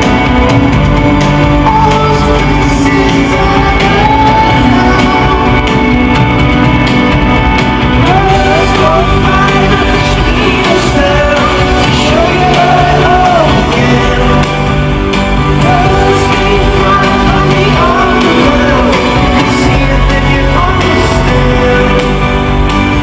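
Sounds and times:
rock band playing live: 0.0 - 23.0.

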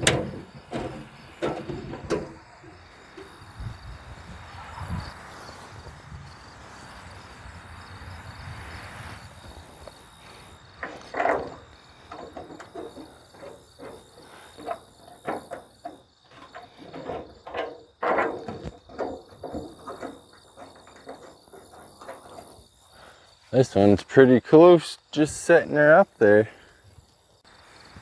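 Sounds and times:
knocks on truck panels: 0.0 - 3.5, 14.6 - 22.4
crickets trilling: 0.0 - 28.0.

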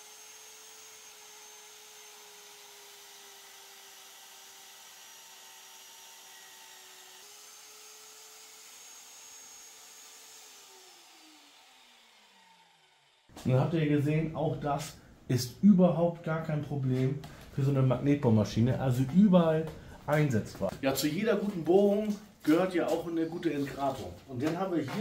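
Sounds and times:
core drill motor whine: 0.0 - 13.3.

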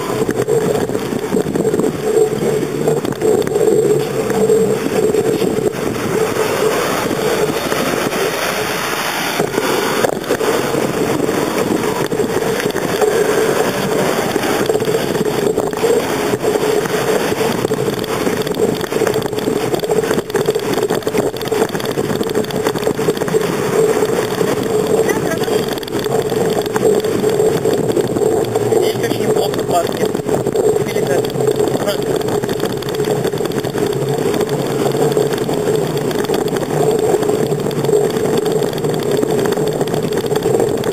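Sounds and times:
bicycle road and tyre noise: 0.0 - 40.9.

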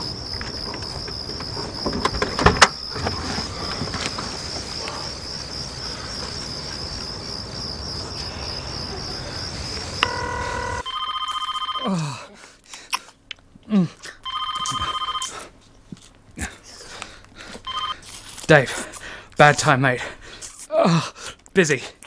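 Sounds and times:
crickets chirping: 0.0 - 11.8
short beep: 10.0 - 11.8
telephone ringing tone: 10.0 - 12.0, 14.2 - 15.3, 17.7 - 18.0.

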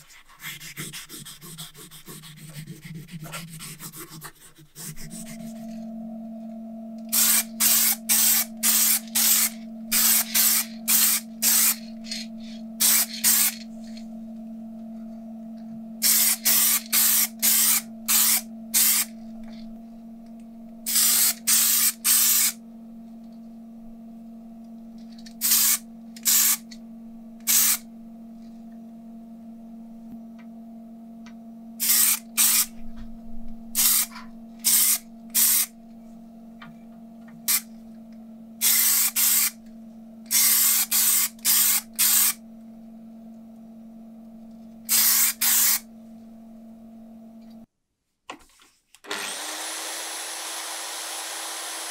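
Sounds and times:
steady hum: 0.0 - 47.7
aerosol spray can spraying: 7.1 - 12.2, 12.8 - 13.6, 16.0 - 19.1, 20.9 - 22.6, 25.4 - 26.6, 27.5 - 27.8, 31.8 - 32.7, 33.8 - 35.7, 38.6 - 39.6, 40.3 - 42.4, 44.9 - 45.8.

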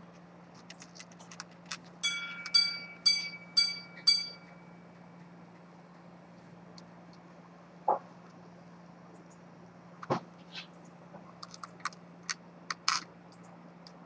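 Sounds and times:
watch chime strikes on gong: 2.0 - 4.8.

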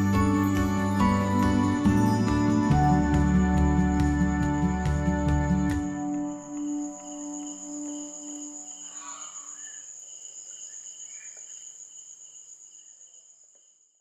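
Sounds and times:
soft music: 0.0 - 9.0
insects chirring: 0.0 - 14.0.

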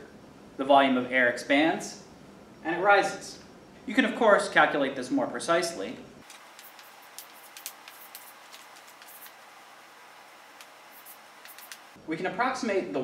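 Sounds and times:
chalk tapping and scratching: 6.3 - 9.4, 10.6 - 12.0.

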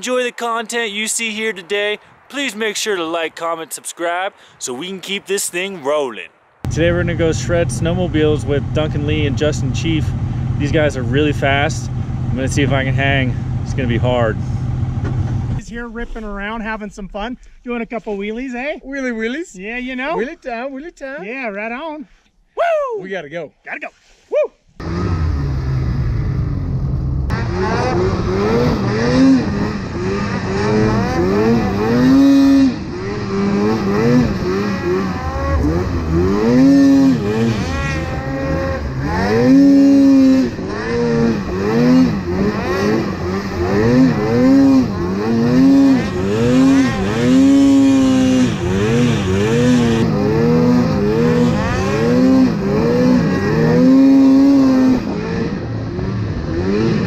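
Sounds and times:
snowmobile engine revving: 4.7 - 15.6, 24.8 - 57.0.

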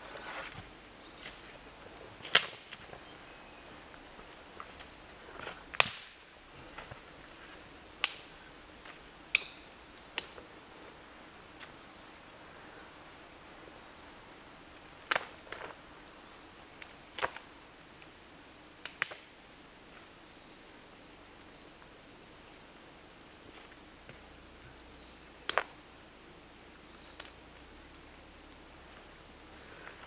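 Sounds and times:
sticks snapping: 2.2 - 2.9, 3.7 - 10.4, 14.8 - 15.8, 16.7 - 18.1, 18.8 - 19.3, 25.4 - 25.7, 26.9 - 28.6.

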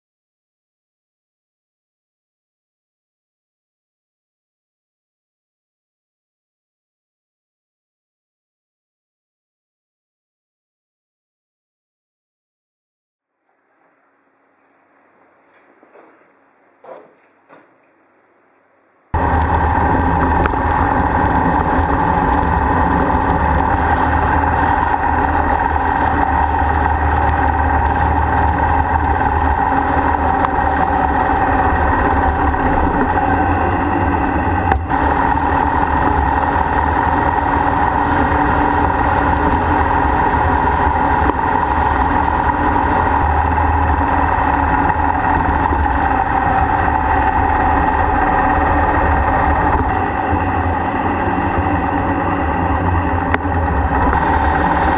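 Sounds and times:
motorcycle engine running: 19.1 - 54.9
wind and road noise: 19.2 - 54.9.

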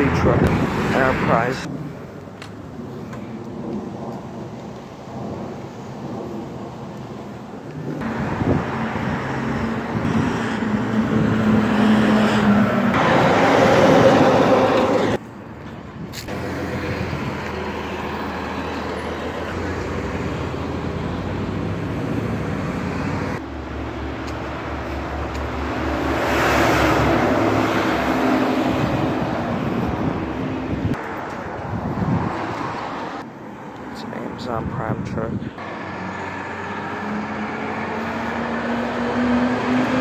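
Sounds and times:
vehicle engines and tyre noise: 0.0 - 40.0
bus passing: 7.7 - 33.8, 35.4 - 40.0.

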